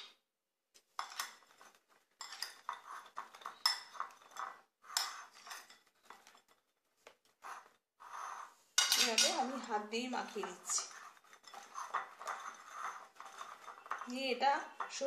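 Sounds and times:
metal spoon clinking on bowls: 2.2 - 6.6, 8.8 - 15.0.

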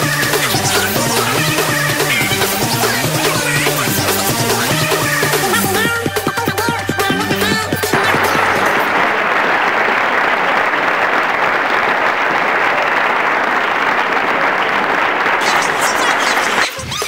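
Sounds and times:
large crowd cheering and applauding: 7.1 - 17.0.

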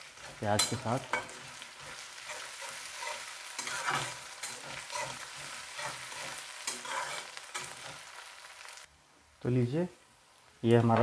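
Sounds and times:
spatula scraping a pan: 0.0 - 8.2
onions sizzling in hot oil: 0.0 - 11.0.

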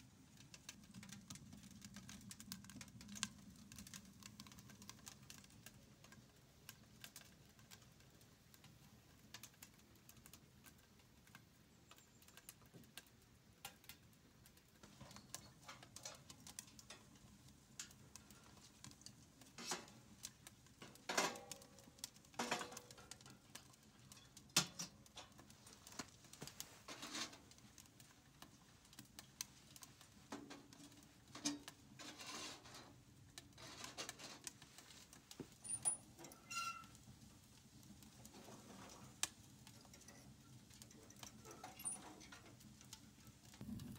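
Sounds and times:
wood fire crackling: 0.0 - 43.9.

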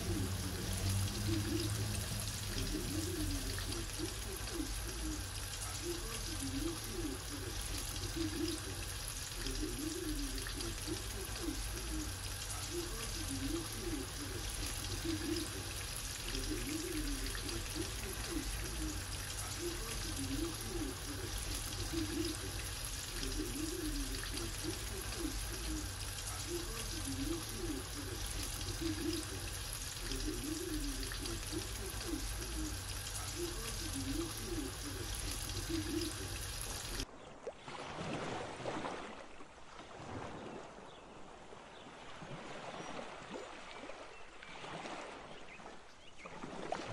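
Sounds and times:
food deep-frying in oil: 0.0 - 37.1.

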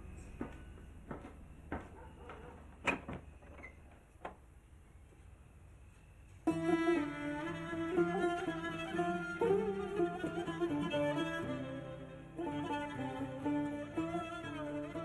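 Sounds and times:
bowed string music: 6.5 - 15.0.

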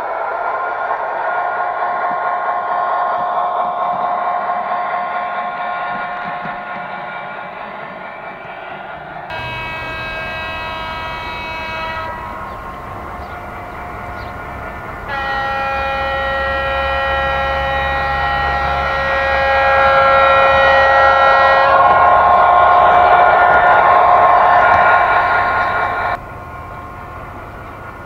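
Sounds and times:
low diesel engine rumble: 9.3 - 28.0
two-tone locomotive horn: 9.3 - 28.0.

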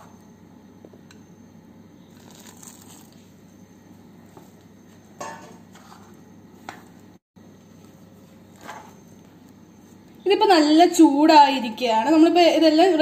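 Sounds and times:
low room hum: 0.0 - 13.0
spoon scraping dough in bowl: 5.3 - 6.8, 8.5 - 9.1.

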